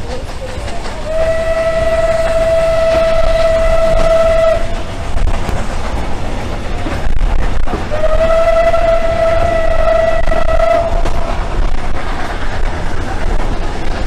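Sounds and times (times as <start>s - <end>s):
low rumble of moving train: 0.0s - 14.0s
steam locomotive whistle: 1.0s - 5.2s, 7.9s - 11.4s.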